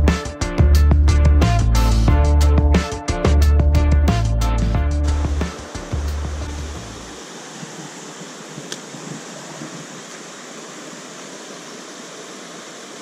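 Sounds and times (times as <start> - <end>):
stream rushing over riffle: 5.1 - 13.0
faint click: 8.6 - 8.9.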